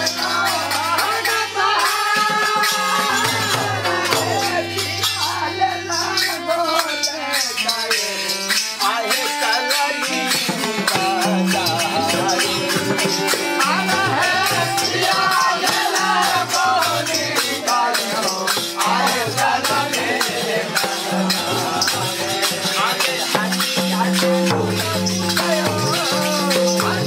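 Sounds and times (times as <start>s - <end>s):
harmonium chords: 0.0s - 22.9s
people singing: 0.0s - 27.0s
rattling percussion: 0.0s - 27.0s
hand drum strokes: 7.4s - 27.0s.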